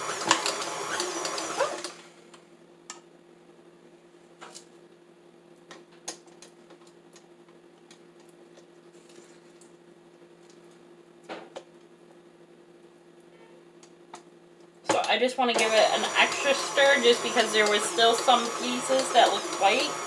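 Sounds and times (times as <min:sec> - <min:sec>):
utensil tapping mixing bowl: 0:14.9 - 0:20.0.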